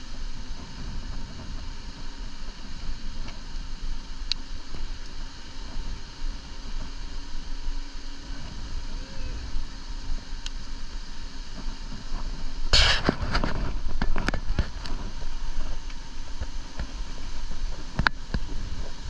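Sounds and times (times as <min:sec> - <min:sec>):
bike rolling on hard sand: 0:00.0 - 0:19.0
wind buffeting microphone: 0:00.0 - 0:19.0
loud burst of noise: 0:11.6 - 0:16.6.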